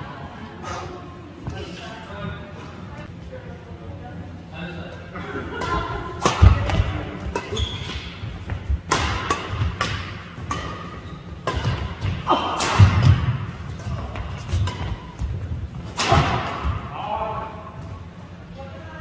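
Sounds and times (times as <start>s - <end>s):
racket striking shuttlecock: 5.6s - 16.8s
shoes squeaking: 5.8s - 16.0s.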